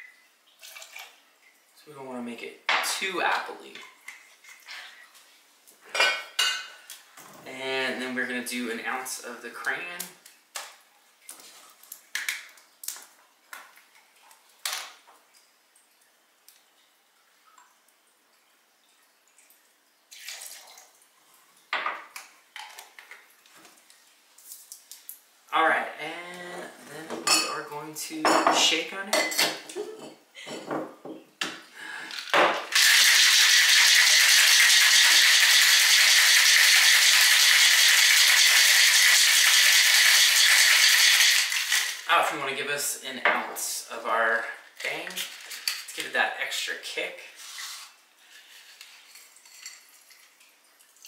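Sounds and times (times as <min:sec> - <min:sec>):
ice rattling in cocktail shaker: 0:32.7 - 0:42.1.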